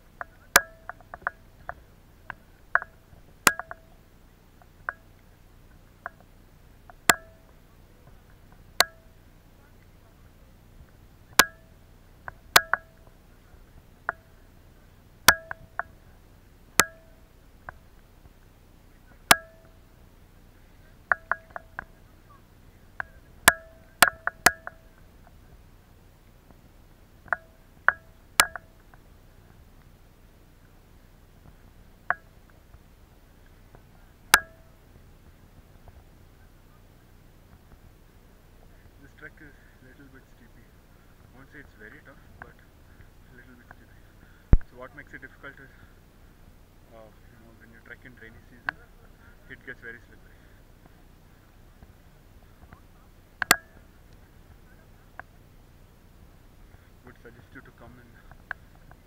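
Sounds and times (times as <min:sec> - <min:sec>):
faint low background noise: 0:00.0 - 0:59.0
raindrops plinking on camera housing: 0:00.2 - 0:04.0, 0:06.9 - 0:07.6, 0:11.4 - 0:13.2, 0:15.3 - 0:16.0, 0:16.8 - 0:17.8, 0:19.3 - 0:19.8, 0:23.0 - 0:25.0, 0:27.3 - 0:28.9, 0:34.3 - 0:34.8.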